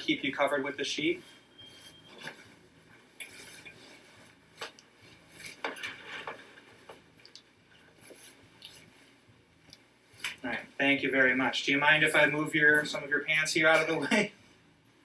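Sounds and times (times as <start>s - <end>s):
faint cloth rustling: 1.0s - 7.1s, 7.7s - 9.3s.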